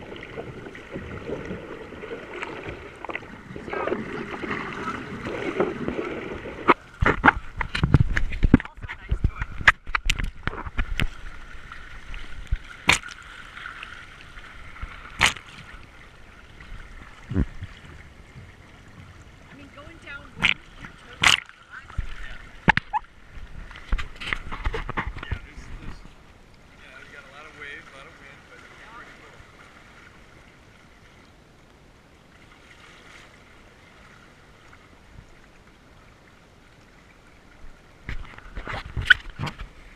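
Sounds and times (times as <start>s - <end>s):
sharp splashes against hull: 0.0s - 16.1s, 19.6s - 25.6s
water rushing along a hull: 0.0s - 39.9s.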